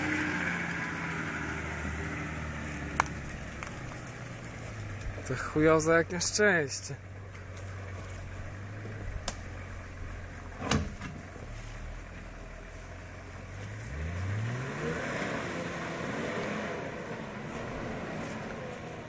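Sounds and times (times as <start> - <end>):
truck engine revving: 0.0 - 7.0, 13.2 - 19.0.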